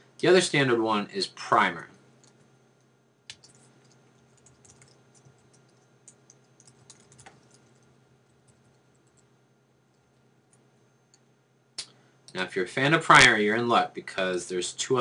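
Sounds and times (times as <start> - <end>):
faint keyboard typing: 2.2 - 11.3.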